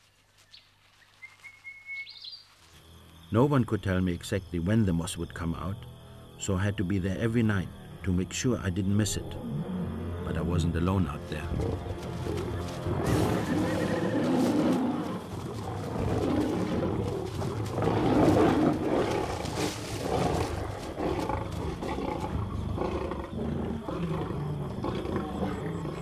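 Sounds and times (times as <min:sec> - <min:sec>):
lions growling and snarling: 0:11.5 - 0:26.0.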